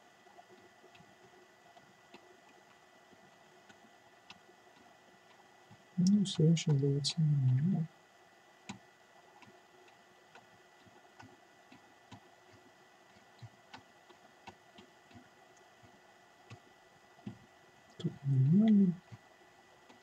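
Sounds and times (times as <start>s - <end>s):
mouse scroll wheel ticks: 9.4s - 16.6s.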